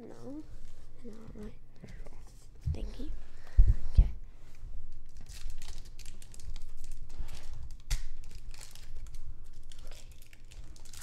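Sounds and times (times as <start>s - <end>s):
foil wrapper crinkling: 4.9s - 11.0s.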